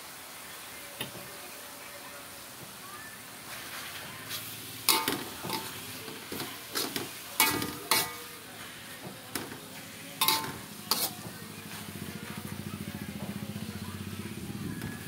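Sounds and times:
faint sizzle of leaves cooking: 0:00.0 - 0:15.0
metal spatula scraping a wok: 0:03.5 - 0:08.8, 0:09.4 - 0:12.4.

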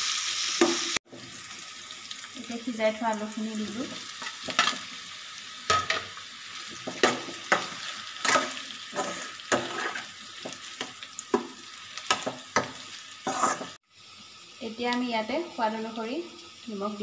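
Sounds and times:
food sizzling in oil: 0:00.0 - 0:17.0
metal spoon scraping a pan: 0:06.7 - 0:13.8.

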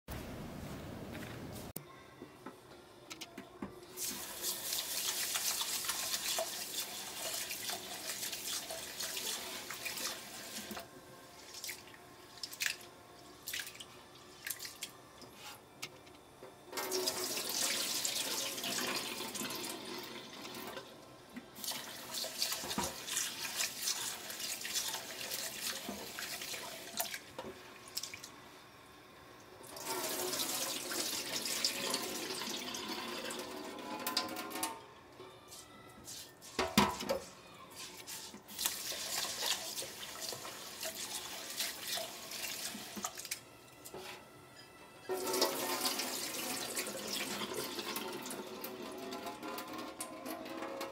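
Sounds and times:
water splashing in a sink: 0:04.0 - 0:10.9, 0:11.5 - 0:15.0, 0:21.6 - 0:28.3, 0:37.8 - 0:43.4, 0:45.1 - 0:50.9.

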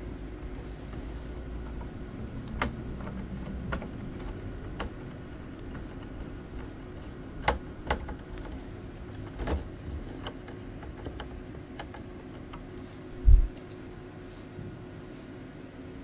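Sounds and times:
steady low hum: 0:00.0 - 0:16.0
clicks handling plastic laptop: 0:00.5 - 0:12.8.

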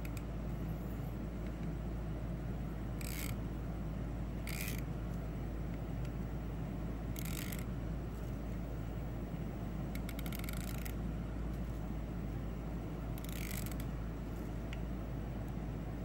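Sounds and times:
fishing reel drag clicker buzzing: 0:03.0 - 0:03.4, 0:04.4 - 0:04.8, 0:07.2 - 0:07.6, 0:13.2 - 0:13.8.

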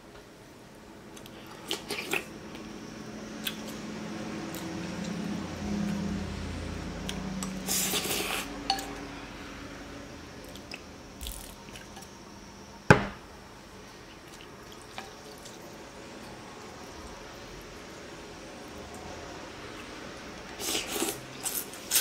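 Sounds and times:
sharp knock: 0:12.9 - 0:13.2.

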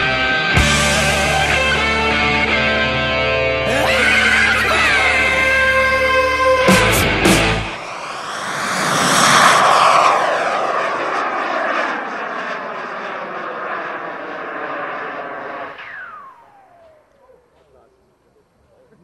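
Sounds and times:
jet turbine flying past: 0:03.9 - 0:17.6.

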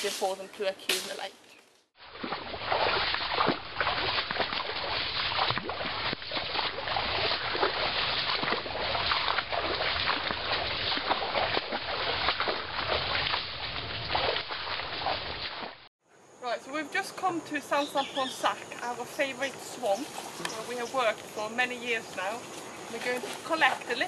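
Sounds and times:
dry fronds rustling and crackling: 0:00.0 - 0:04.0, 0:18.6 - 0:24.0.

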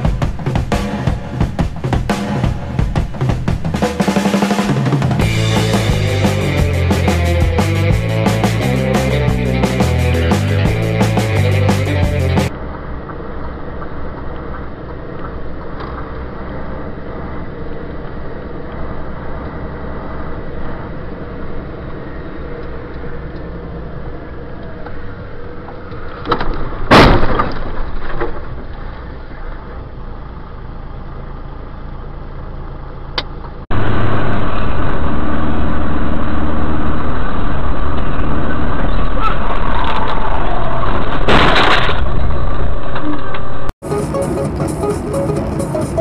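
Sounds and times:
vehicle engine and road noise: 0:00.0 - 0:46.0
loud crash: 0:26.8 - 0:28.5, 0:38.1 - 0:43.7.

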